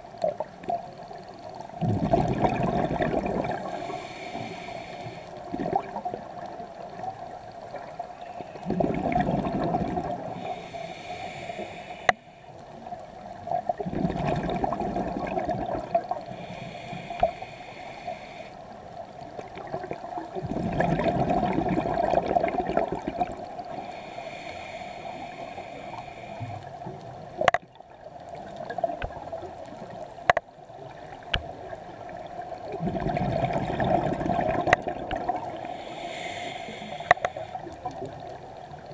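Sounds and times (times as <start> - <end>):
exhaled bubbles gushing: 1.7 - 4.0, 5.4 - 6.5, 8.6 - 10.5, 13.6 - 16.3, 19.4 - 23.7, 32.2 - 35.8
regulator hissing inhale: 3.6 - 5.5, 10.2 - 12.6, 16.2 - 18.8, 23.6 - 26.8, 35.5 - 38.2.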